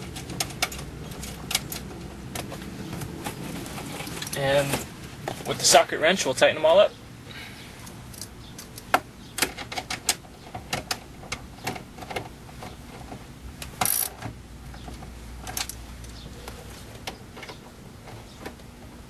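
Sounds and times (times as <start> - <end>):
ratchet wrench clicking: 13.8 - 14.1.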